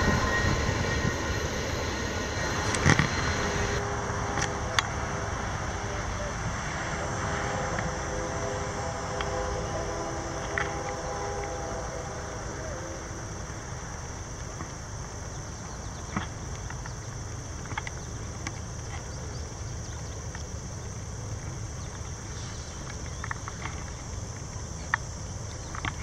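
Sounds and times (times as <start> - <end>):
distant diesel train rumble: 0.0 - 26.0.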